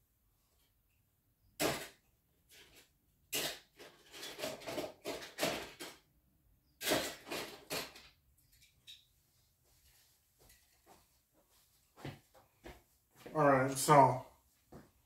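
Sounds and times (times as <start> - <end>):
things rustling on a shelf: 1.6 - 6.1, 6.8 - 13.4.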